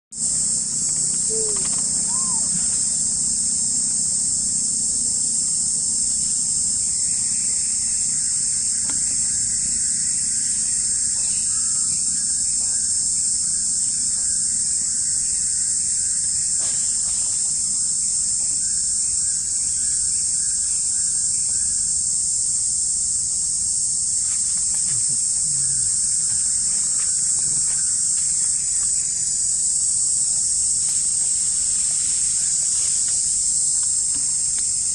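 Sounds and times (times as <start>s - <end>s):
shrill insect chorus: 0.1s - 34.9s
faint chirping calls: 0.2s - 4.4s.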